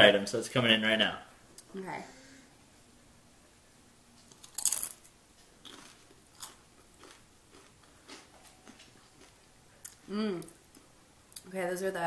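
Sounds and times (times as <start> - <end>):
chip crunching while chewed: 4.3 - 10.1.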